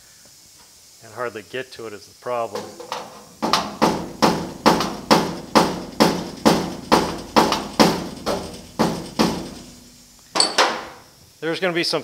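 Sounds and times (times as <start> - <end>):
hammer tapping sheet metal: 2.6 - 10.9.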